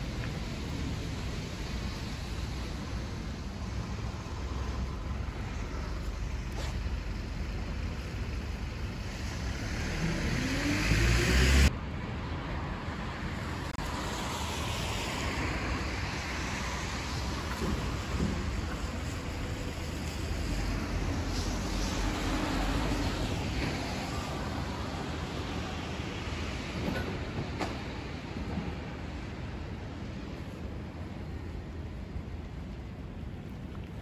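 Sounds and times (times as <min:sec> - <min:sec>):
steady traffic noise: 0:00.0 - 0:34.0
car passing close by: 0:09.0 - 0:11.7.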